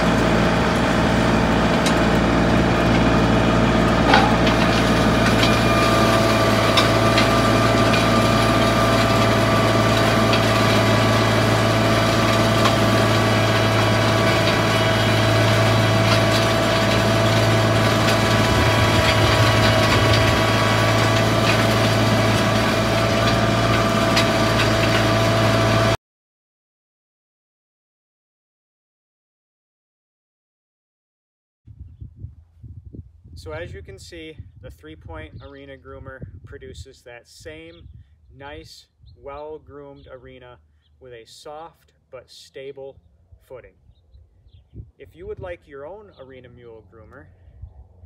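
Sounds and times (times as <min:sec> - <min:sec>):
high whine: 0:00.0 - 0:09.6
tractor engine under load: 0:00.0 - 0:26.0.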